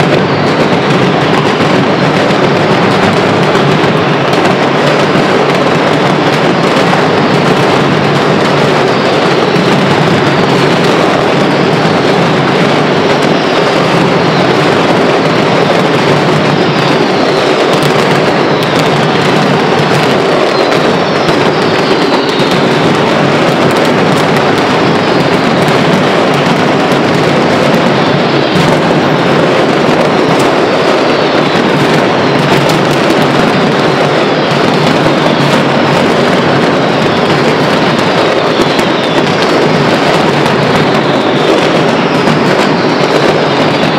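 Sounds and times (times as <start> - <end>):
firecrackers banging and crackling: 0.0 - 43.9
falling whistles: 20.5 - 22.8.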